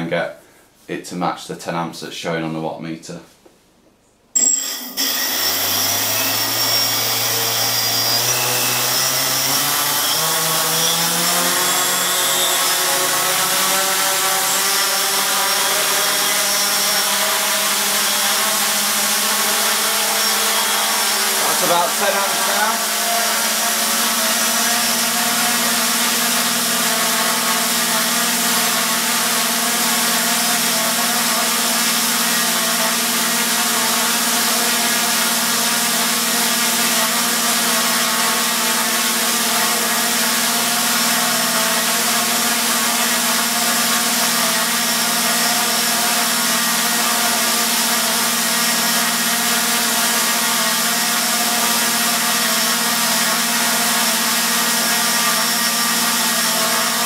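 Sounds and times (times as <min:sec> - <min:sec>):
drone motors whining: 0:04.4 - 0:28.0.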